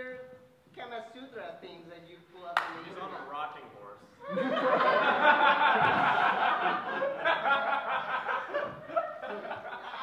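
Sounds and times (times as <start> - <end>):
audience laughing: 4.2 - 10.0.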